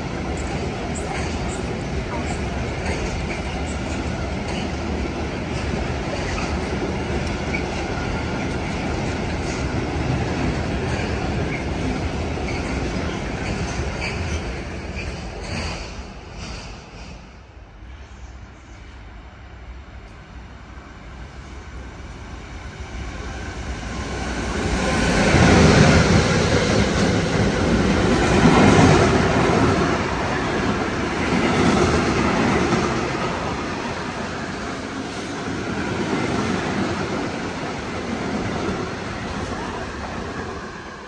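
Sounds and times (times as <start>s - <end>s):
freight train passing: 0.0s - 41.0s
wheels clattering on rail: 0.2s - 17.2s.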